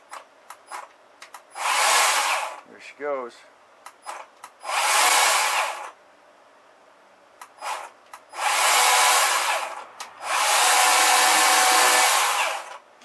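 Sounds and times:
electric chainsaw whirring: 1.5 - 2.7, 4.1 - 6.0, 7.4 - 12.8.

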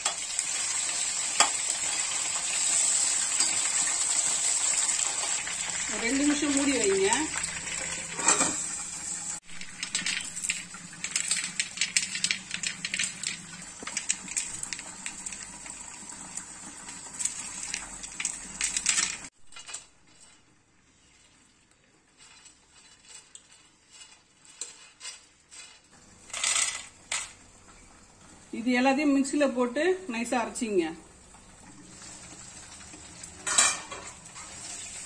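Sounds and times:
peanuts rattling on a steel plate: 9.5 - 15.6, 16.8 - 20.5, 22.1 - 27.4.

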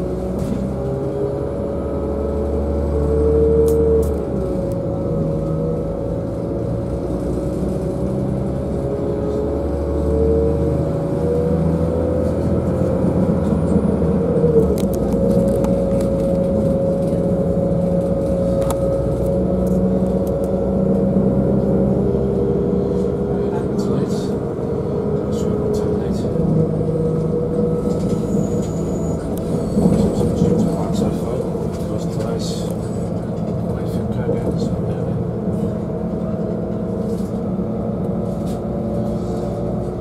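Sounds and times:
droning motor: 0.0 - 40.0
train wheels rumbling on track: 0.0 - 40.0.

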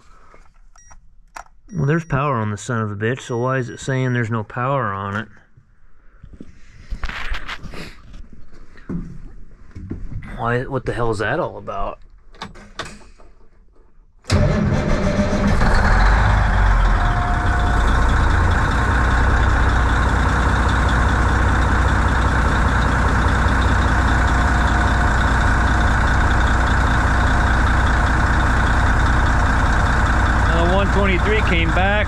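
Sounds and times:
diesel engine starting and idling: 14.3 - 32.0.

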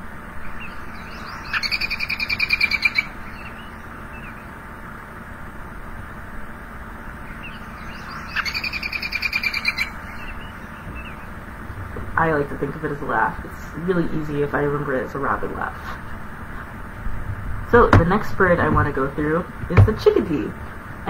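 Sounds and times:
robin alarm call: 0.2 - 4.6, 7.2 - 11.7.

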